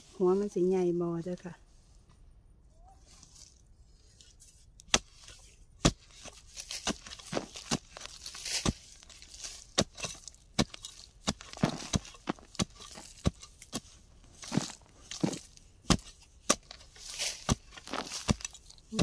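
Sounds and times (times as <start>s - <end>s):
spade chopping into soil: 4.8s - 19.0s.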